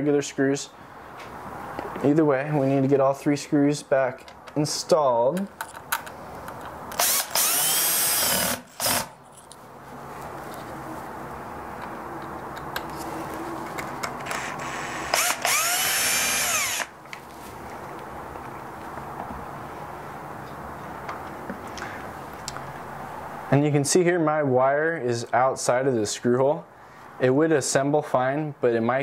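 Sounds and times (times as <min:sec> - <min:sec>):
cordless drill whirring: 0:07.0 - 0:09.1, 0:14.2 - 0:16.9.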